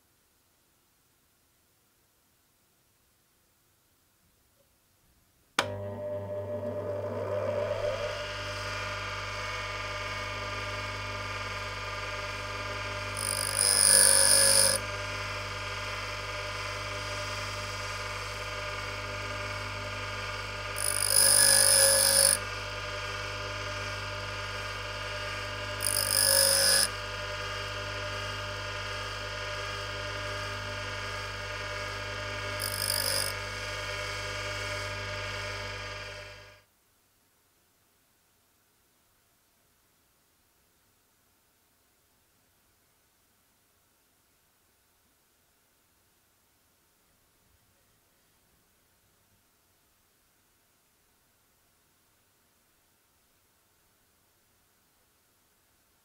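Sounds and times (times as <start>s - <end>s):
drill bit grinding rasp: 5.6s - 8.7s, 12.7s - 14.9s, 20.7s - 22.5s, 25.1s - 28.2s, 31.1s - 36.4s
bench grinder humming: 5.6s - 36.6s.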